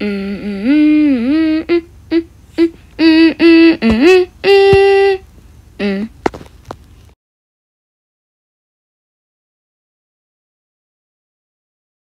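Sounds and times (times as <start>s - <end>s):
person singing wordless tune: 0.0s - 6.3s.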